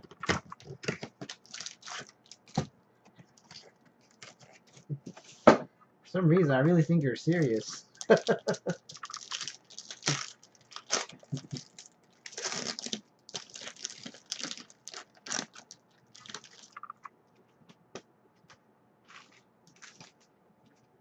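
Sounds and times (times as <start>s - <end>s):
card pack crinkling: 0.2s - 2.7s, 3.4s - 4.8s, 7.3s - 17.0s, 19.1s - 20.2s.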